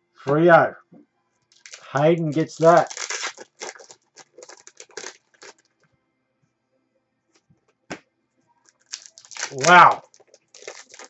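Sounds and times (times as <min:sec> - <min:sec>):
card pack crinkling: 0:01.5 - 0:05.7, 0:08.7 - 0:11.0.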